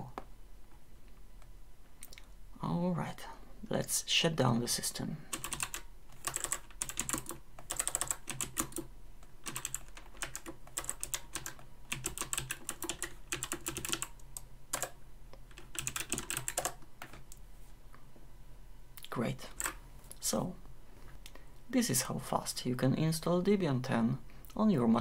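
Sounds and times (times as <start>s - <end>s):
typing on computer keyboard: 5.3s - 17.4s.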